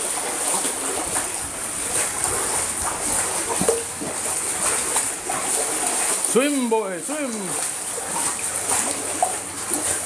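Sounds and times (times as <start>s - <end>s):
pool water splashing: 0.0s - 10.0s.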